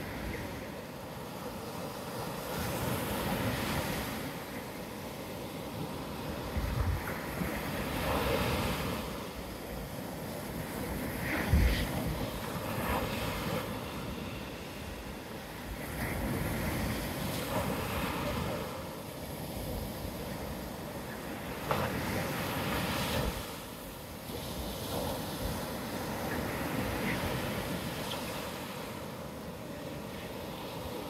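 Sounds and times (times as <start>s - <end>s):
waves breaking: 0.0s - 31.0s
wind on microphone: 5.8s - 23.6s.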